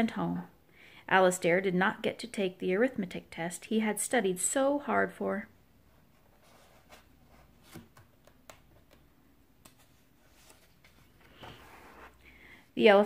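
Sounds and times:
paper pages rustling: 6.1 - 12.2.

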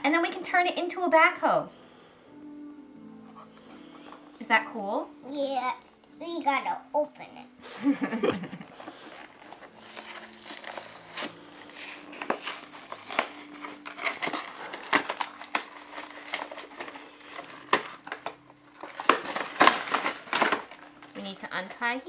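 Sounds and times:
cardboard box and plastic crinkling: 8.7 - 22.0.

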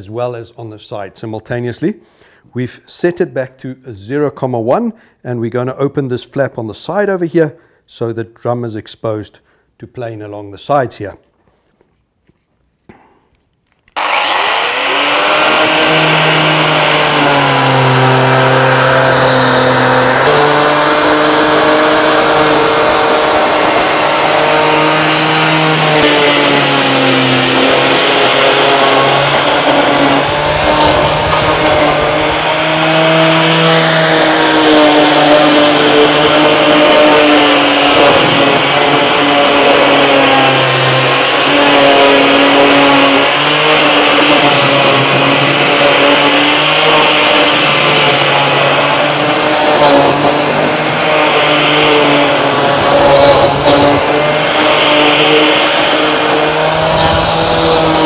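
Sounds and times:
electric paint remover milling: 13.9 - 58.0
dust extractor running: 14.0 - 58.0.

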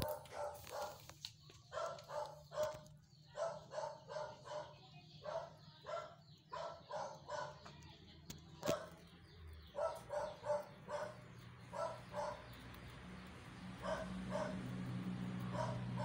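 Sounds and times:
dog barking: 0.0 - 1.1, 1.7 - 7.7, 8.6 - 12.6, 13.8 - 14.7, 15.4 - 16.0.

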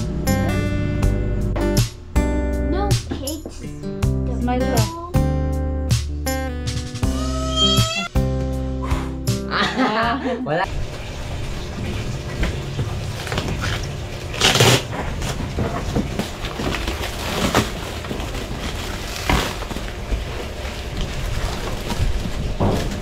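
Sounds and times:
plastic wrap crinkling: 13.1 - 23.0.

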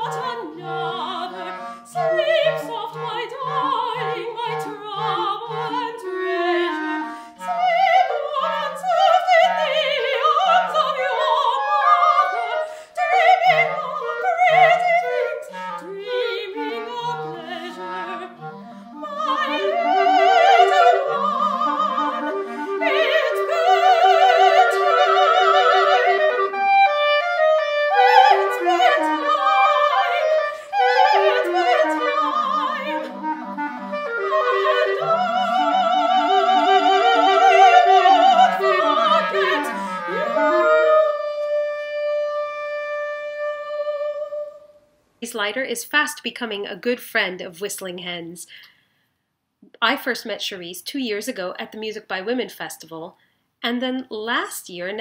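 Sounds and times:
soprano singing operatic: 0.0 - 27.3, 27.9 - 42.3, 43.1 - 44.8
clarinet melody: 0.0 - 45.0.

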